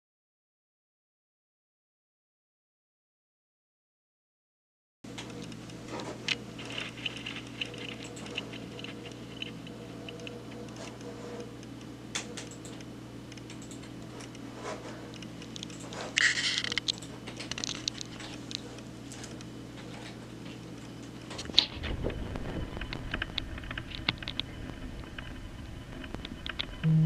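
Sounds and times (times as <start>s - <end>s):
electrical hum: 5.1s - 27.0s
computer keyboard typing: 6.6s - 11.1s, 12.2s - 14.4s, 15.1s - 18.6s.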